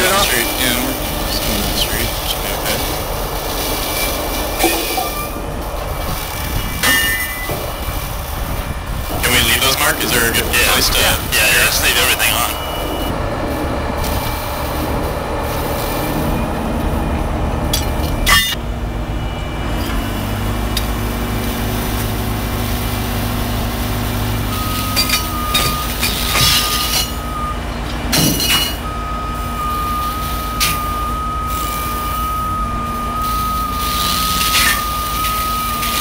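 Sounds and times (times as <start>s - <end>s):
steady high whine: 0.0s - 27.8s, 28.4s - 36.0s
diesel tow truck engines running: 0.0s - 36.0s
sharp metallic clanks: 2.7s - 8.2s, 17.6s - 18.6s, 24.6s - 27.3s, 28.1s - 28.8s.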